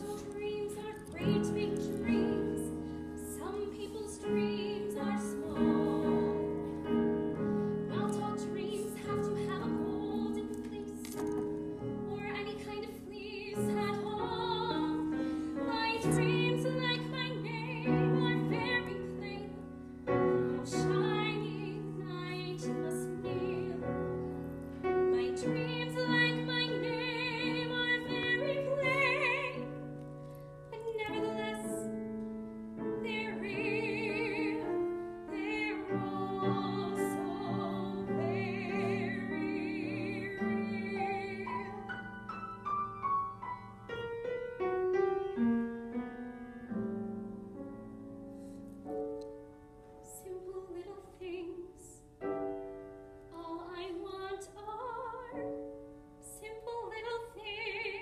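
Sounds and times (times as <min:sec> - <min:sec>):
grand piano: 0:00.0 - 0:58.0
woman singing operatically: 0:20.6 - 0:24.0, 0:25.1 - 0:29.7, 0:30.7 - 0:31.8, 0:33.0 - 0:41.9, 0:56.2 - 0:58.0.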